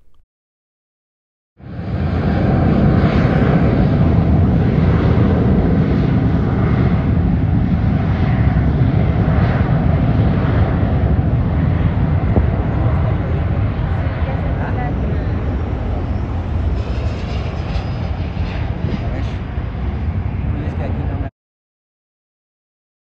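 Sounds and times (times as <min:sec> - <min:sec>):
jet engines rumbling: 0:01.6 - 0:21.3.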